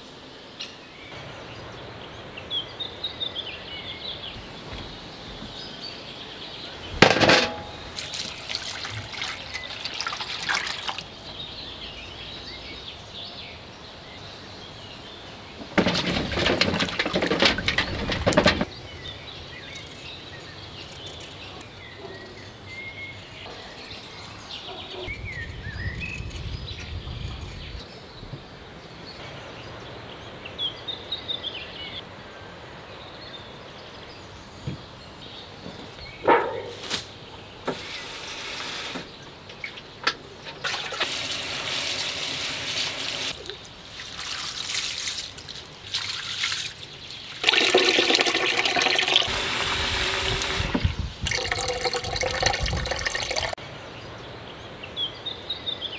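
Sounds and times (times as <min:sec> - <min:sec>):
birds chirping: 0:00.0 - 0:43.9, 0:46.7 - 0:55.9
water splashing in a bowl: 0:07.1 - 0:11.2, 0:42.8 - 0:53.6
water poured into a sink: 0:08.0 - 0:11.1, 0:47.4 - 0:53.6.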